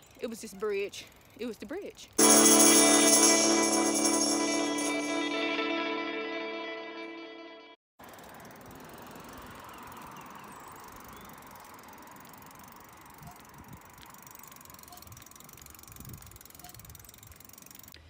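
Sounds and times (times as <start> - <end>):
bike tyres rolling on pavement: 0.7 - 1.5, 8.0 - 18.0.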